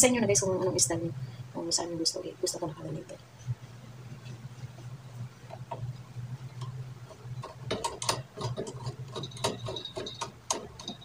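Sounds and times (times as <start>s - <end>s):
clamp clicking and rattling: 7.4s - 11.0s.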